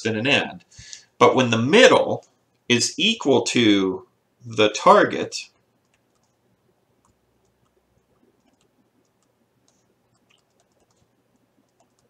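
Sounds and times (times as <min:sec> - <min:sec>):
stylus tapping on a tablet: 0:07.0 - 0:11.1.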